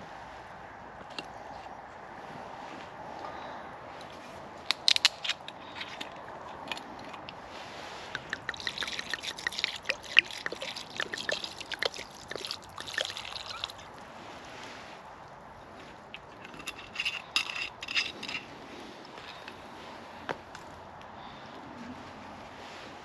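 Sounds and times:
wine pouring and gurgling: 8.1 - 14.0.

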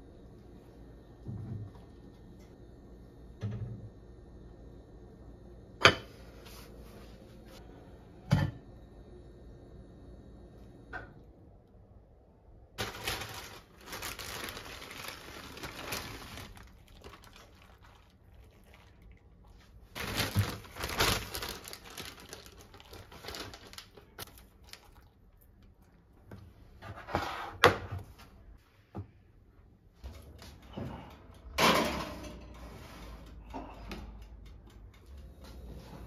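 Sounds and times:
plastic bag crinkling: 12.8 - 19.0, 19.9 - 25.2.

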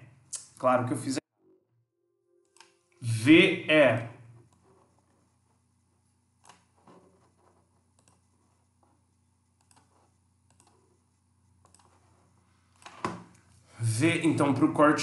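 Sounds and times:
faint computer mouse clicks: 9.6 - 9.9, 10.5 - 10.8, 11.6 - 11.9.

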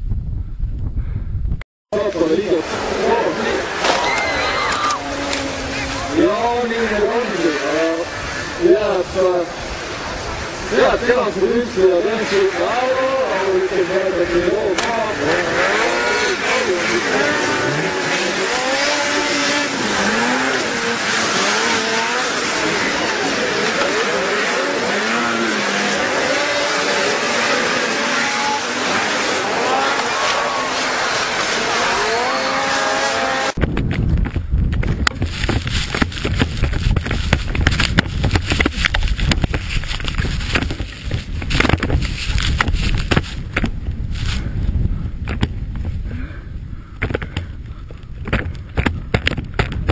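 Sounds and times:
wind buffeting microphone: 0.0 - 1.6, 2.4 - 23.6, 33.3 - 49.9
steady rushing noise: 0.0 - 49.9
snowmobile engines revving: 2.0 - 33.6
sharp knocks and crackles: 33.6 - 44.5, 45.2 - 46.0, 47.0 - 49.9.

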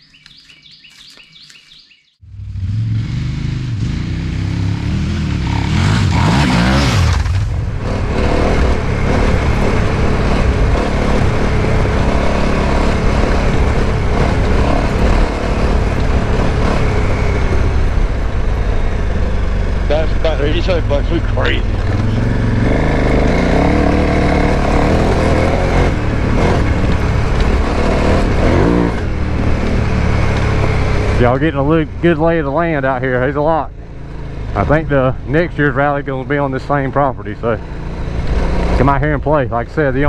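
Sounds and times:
birds chirping: 0.0 - 2.2, 9.0 - 37.0
motorcycle engine accelerating: 2.2 - 40.0.

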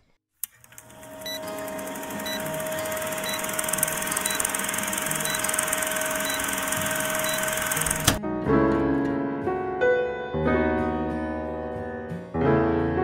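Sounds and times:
film projector whirring and clattering: 0.4 - 8.2.

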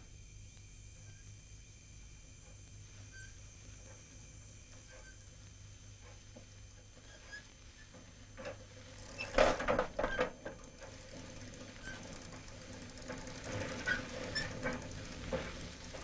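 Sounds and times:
old bicycle rattling over dirt: 6.0 - 16.0.

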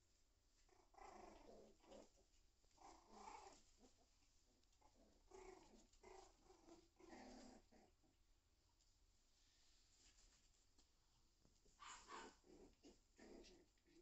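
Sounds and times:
puppies making vocal noises: 0.6 - 8.2, 11.6 - 14.0.

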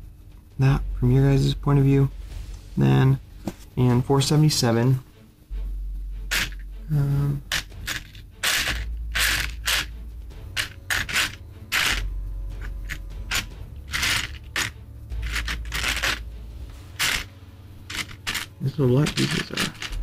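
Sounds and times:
plastic scraping against plastic: 7.4 - 9.9, 10.5 - 20.0
plastic pieces clicking and tapping: 7.5 - 9.9, 17.9 - 20.0.

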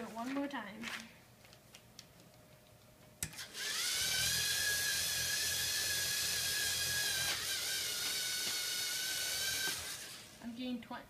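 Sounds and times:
motor spinning wheels high whine: 3.4 - 10.4.

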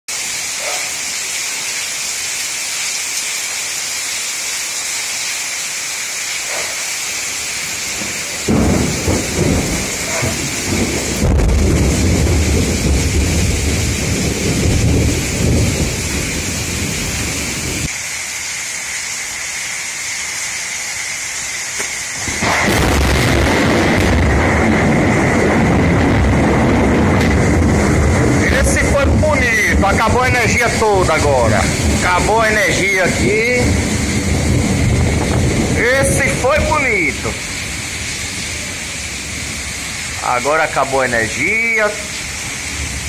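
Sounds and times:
heavy rain: 0.1 - 43.0
thunder rumbling: 7.6 - 17.9, 22.0 - 43.0
loud thunderclap: 7.9 - 17.9, 22.2 - 37.7.

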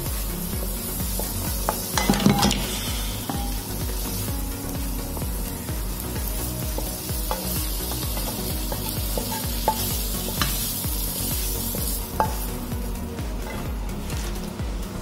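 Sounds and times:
spatula scraping a frying pan: 0.0 - 12.6
food sizzling: 0.0 - 15.0
spatula clacking against pan: 1.2 - 3.7, 6.1 - 11.1.

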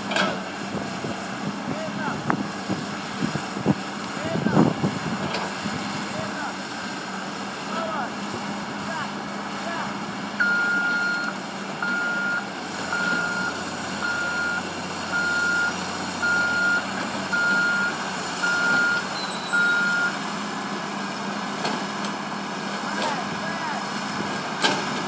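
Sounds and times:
excavator diesel engine running: 0.0 - 25.0
high-pitched travel alarm beeping: 10.4 - 20.2.

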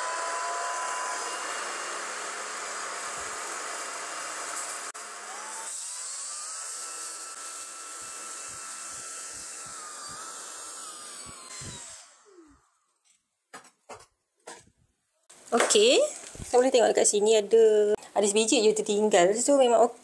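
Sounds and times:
vacuum motor whine: 0.0 - 12.9.

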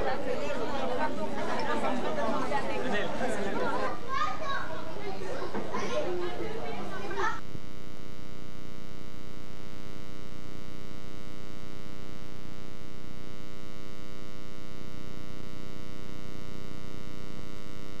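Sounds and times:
electrical buzz: 7.4 - 18.0.

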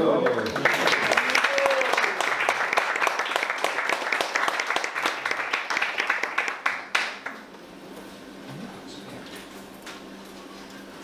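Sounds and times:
audience applauding: 0.0 - 7.4.

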